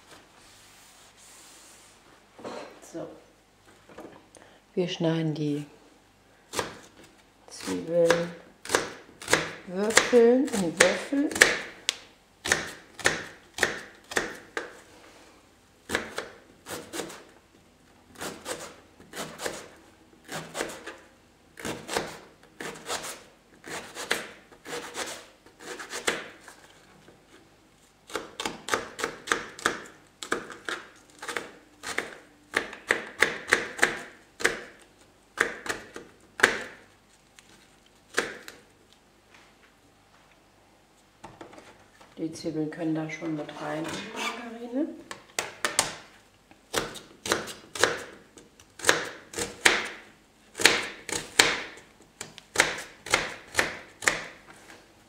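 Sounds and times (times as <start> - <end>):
knife chopping on cutting board: 7.6 - 11.7, 28.1 - 34.8, 35.4 - 36.8, 46.7 - 48.2, 48.8 - 50.0, 50.6 - 51.8, 52.5 - 54.4.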